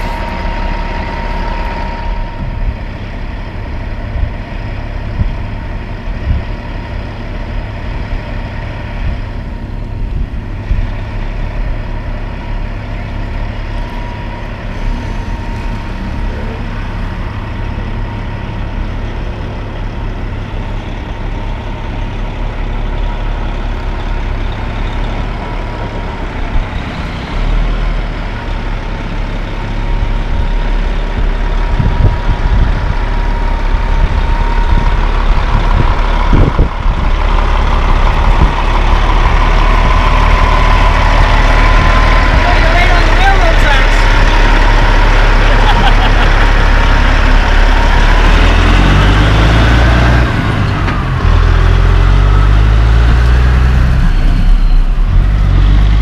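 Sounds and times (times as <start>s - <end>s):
high-pitched whine: 0.0s - 7.2s, 9.0s - 21.6s, 50.9s - 56.0s
truck diesel engine under load: 0.0s - 56.0s.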